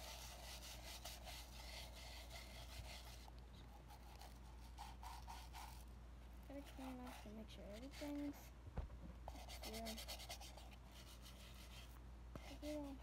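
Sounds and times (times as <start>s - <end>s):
brush scrubbing hard case: 0.0s - 5.8s, 6.5s - 8.3s.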